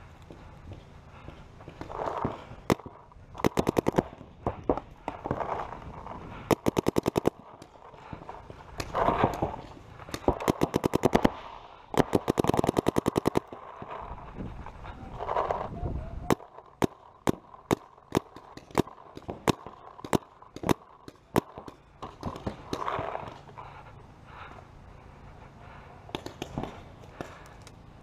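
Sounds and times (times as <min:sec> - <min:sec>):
paintball marker rapid firing: 0:01.2 - 0:05.7, 0:06.3 - 0:14.1, 0:16.3 - 0:23.4, 0:26.1 - 0:27.5.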